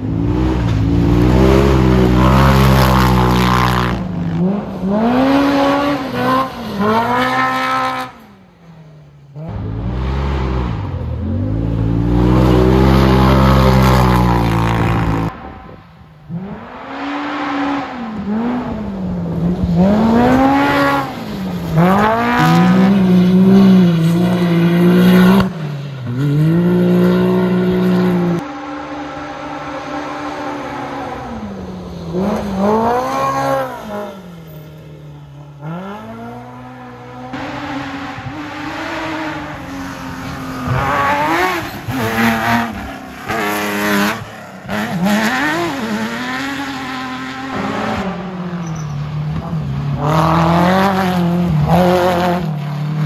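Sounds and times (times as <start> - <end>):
buggy engines revving past: 0.0 - 8.2, 9.3 - 15.6, 16.3 - 34.6.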